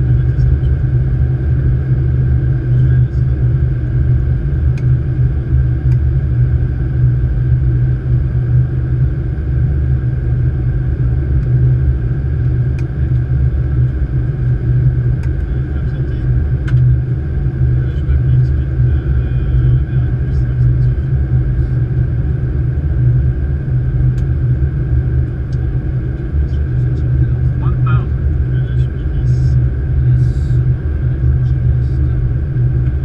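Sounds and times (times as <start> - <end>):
airflow and engine rumble: 0.0 - 33.0.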